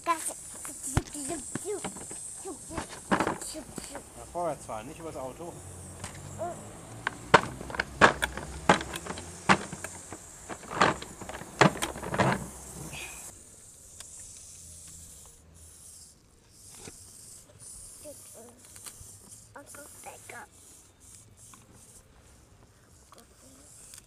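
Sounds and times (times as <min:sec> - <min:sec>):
tiny electric motor whine: 0:00.0 - 0:13.4.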